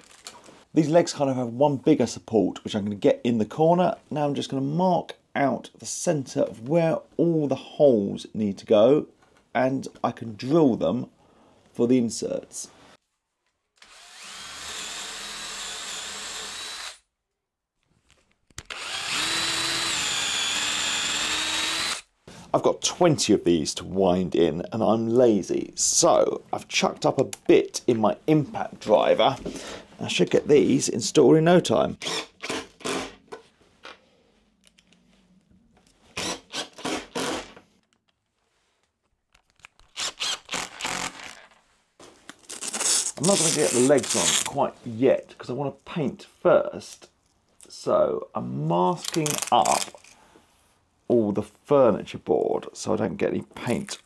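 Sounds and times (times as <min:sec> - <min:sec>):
cordless drill whining: 0:13.8 - 0:17.0, 0:18.6 - 0:22.1, 0:36.1 - 0:37.6, 0:40.0 - 0:41.6
impact driver bursts: 0:36.2 - 0:37.6, 0:40.0 - 0:41.4.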